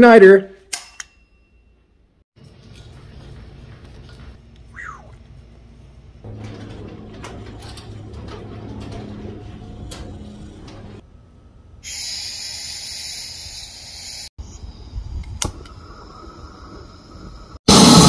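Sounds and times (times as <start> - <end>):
gas hissing from torch nozzle: 11.8 - 14.3.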